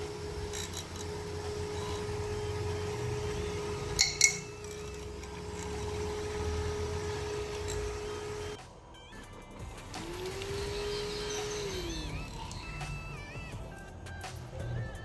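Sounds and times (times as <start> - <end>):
cooling fan whining: 0.0 - 8.6, 9.6 - 14.3.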